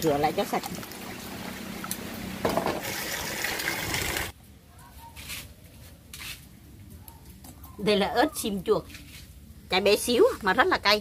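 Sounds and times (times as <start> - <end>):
water splashing in plastic basin: 0.2 - 4.3.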